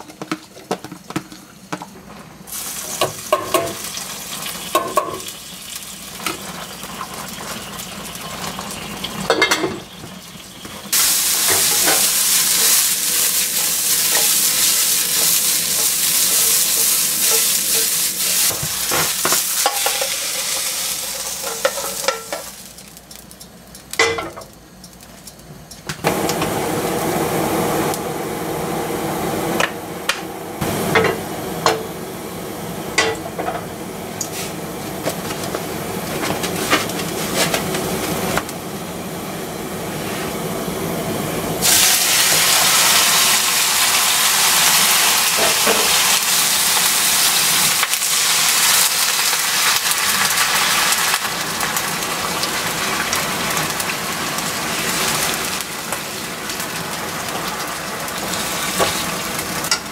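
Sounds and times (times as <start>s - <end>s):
frying pan hissing: 0.0s - 23.2s, 26.0s - 59.9s
beef sizzling in a pan: 2.5s - 23.3s, 41.6s - 59.9s.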